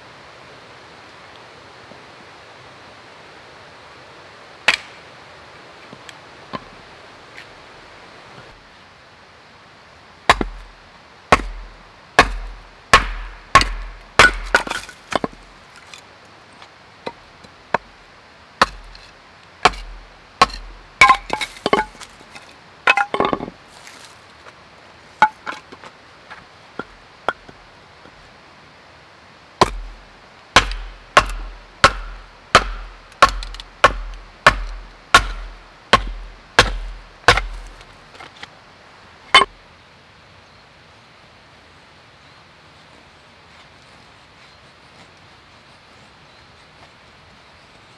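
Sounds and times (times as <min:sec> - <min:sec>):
axe chopping firewood: 0:04.7 - 0:05.0, 0:10.3 - 0:10.7, 0:11.3 - 0:15.5, 0:18.6 - 0:23.5, 0:29.6 - 0:30.0, 0:30.6 - 0:38.4
wood splitting cracks: 0:12.2 - 0:16.0, 0:18.6 - 0:23.5, 0:30.6 - 0:38.4.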